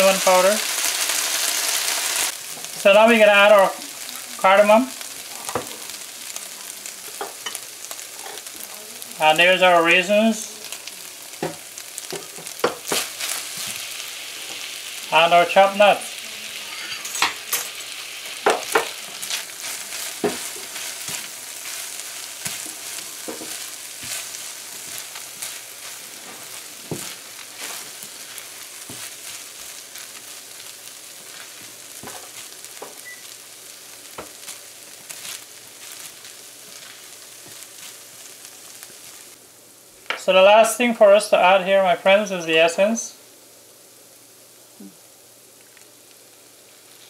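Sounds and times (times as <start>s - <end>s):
rice sizzling in frying pan: 0.0s - 47.0s
spatula scraping pan: 16.6s - 17.8s.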